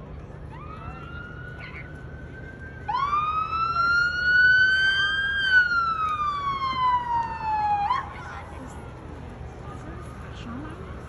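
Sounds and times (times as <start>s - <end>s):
faint steady siren: 0.2s - 8.5s
loud rising siren: 0.4s - 8.5s.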